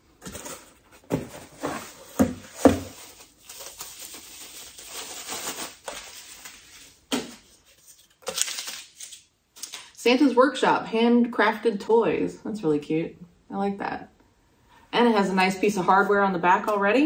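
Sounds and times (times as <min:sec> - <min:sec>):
packing paper rustling: 0:00.2 - 0:09.3
cardboard box knocks: 0:02.2 - 0:02.9.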